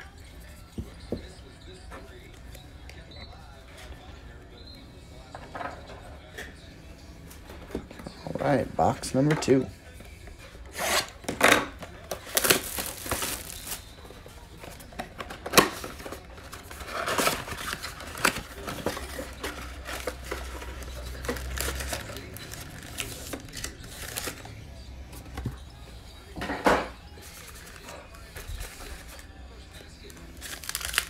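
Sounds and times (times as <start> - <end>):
cardboard and paper rustling: 11.8 - 25.6, 26.8 - 31.0
shrink wrap crinkling and tearing: 12.1 - 14.0, 15.6 - 24.6, 29.9 - 31.0.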